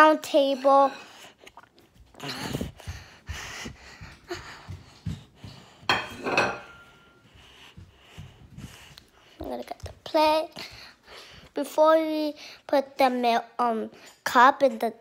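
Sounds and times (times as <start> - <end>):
dishes knocking and clinking: 5.8 - 7.2
faint dish ring: 5.9 - 7.2.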